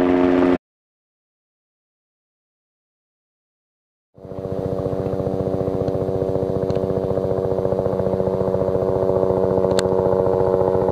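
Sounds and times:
helicopter rotor beating: 0.0 - 0.6, 4.2 - 10.9
turbine whine: 0.0 - 0.6, 4.2 - 10.9.

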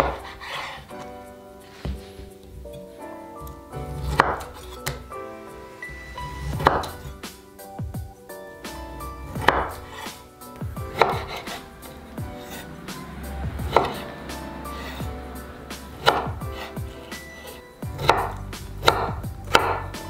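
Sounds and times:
knife slicing on cutting board: 0.0 - 1.0, 6.4 - 7.2, 10.9 - 11.7, 15.9 - 19.8.

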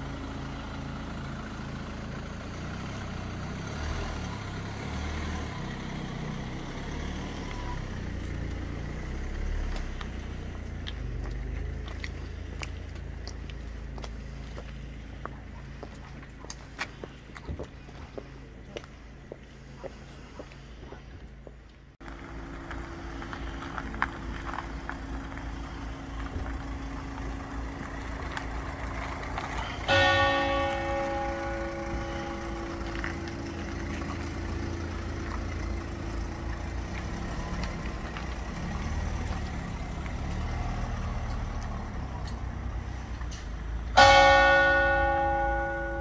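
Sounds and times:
car engine running: 0.0 - 46.0
church bell tolling: 29.7 - 33.6, 44.0 - 46.0.

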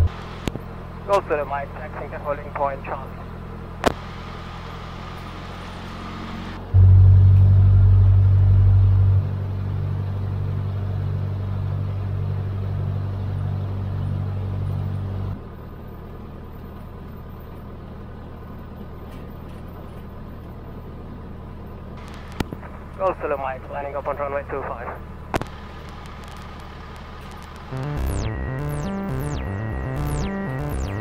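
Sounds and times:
small airplane engine drone: 0.0 - 31.0.

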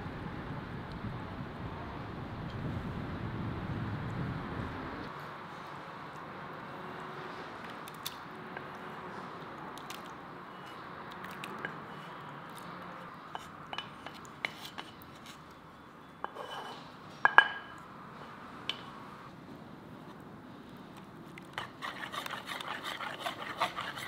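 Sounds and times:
spatula scraping frying pan: 21.6 - 24.0.

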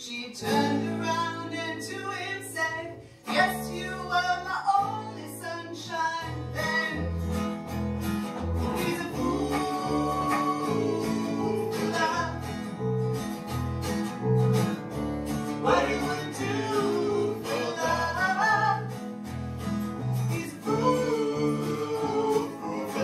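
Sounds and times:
woman and man singing: 0.0 - 7.2, 8.7 - 12.4, 15.6 - 19.0, 20.2 - 23.0
acoustic guitars strumming: 0.1 - 23.0.

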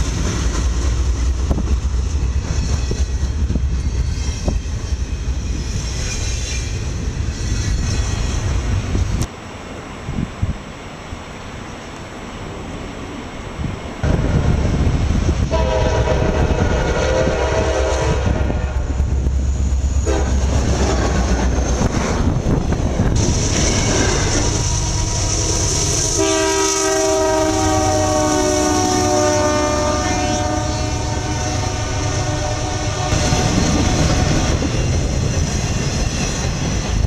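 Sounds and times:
passing train rumble: 0.0 - 37.0
train horn chord: 15.5 - 19.0, 20.0 - 20.4, 26.1 - 33.6.

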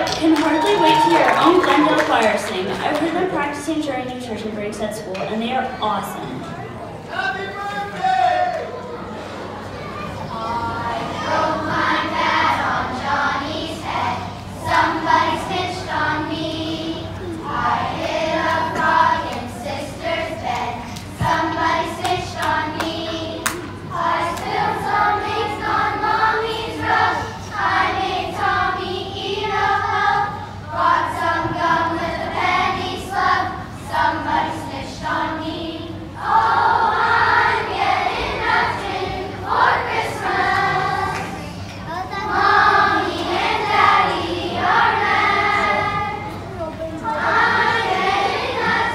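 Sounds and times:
children's choir singing: 5.2 - 48.9.

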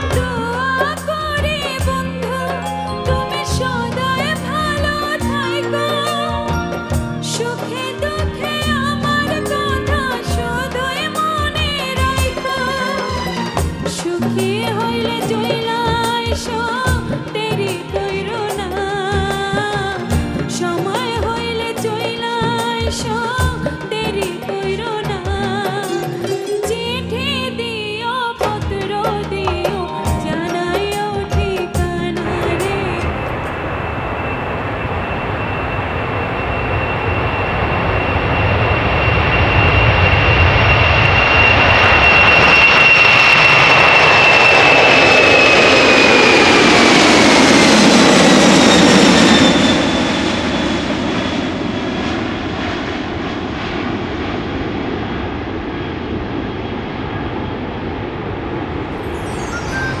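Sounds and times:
jet airliner passing overhead: 0.0 - 17.2, 32.1 - 60.0.

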